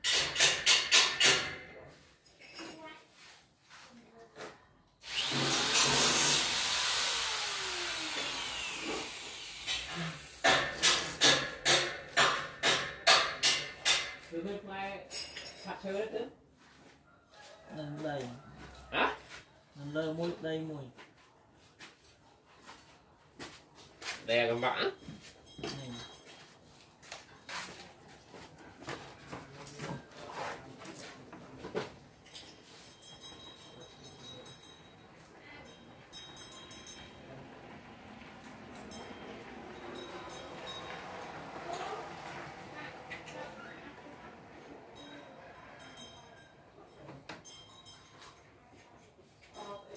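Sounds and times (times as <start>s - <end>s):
power tool winding down: 5.0s - 10.4s.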